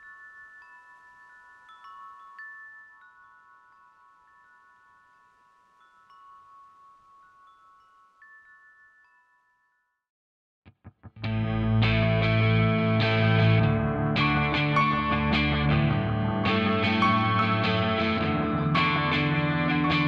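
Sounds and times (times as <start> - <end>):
metal wind chime ringing: 0.0 - 10.0.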